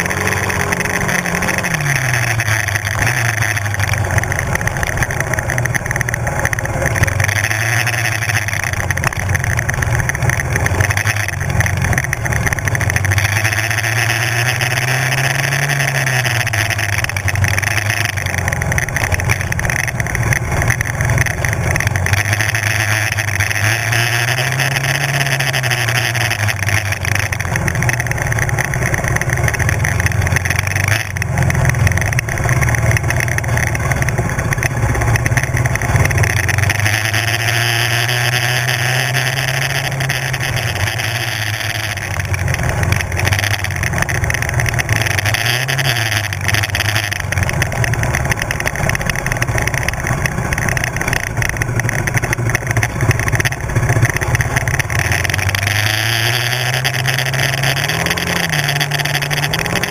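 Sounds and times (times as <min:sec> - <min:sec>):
quad engine revving: 0:00.0 - 0:59.9.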